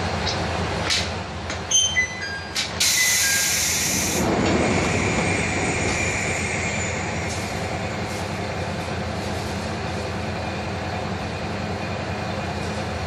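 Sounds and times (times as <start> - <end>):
diesel engine running: 2.5 - 13.0
hiss of released air: 2.8 - 8.4.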